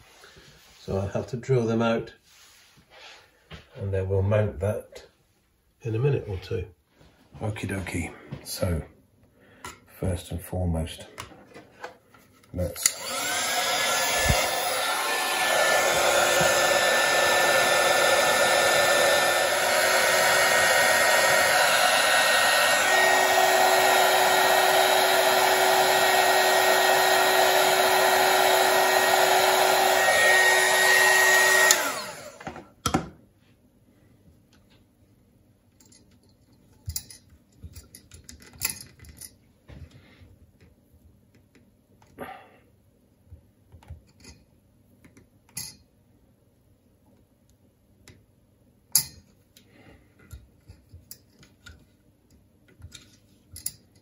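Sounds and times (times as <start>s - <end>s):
heat gun blowing with whine: 12.7s - 32.6s.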